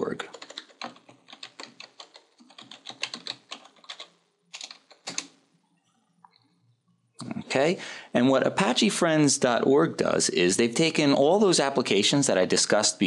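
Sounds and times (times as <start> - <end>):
keyboard typing: 0.0 - 5.4.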